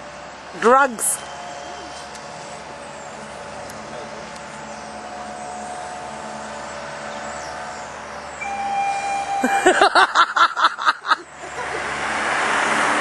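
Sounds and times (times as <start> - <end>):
traffic noise: 0.0 - 13.0
brief steady tone: 8.4 - 9.6.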